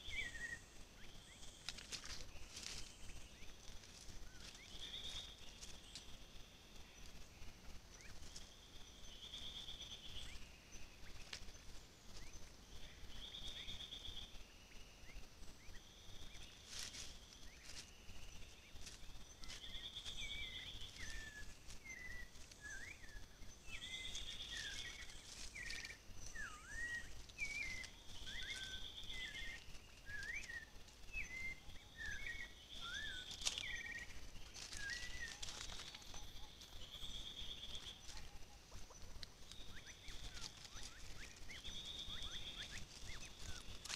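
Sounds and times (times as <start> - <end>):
bird chirping: 0.0 - 43.9
faint high whine: 0.0 - 43.9.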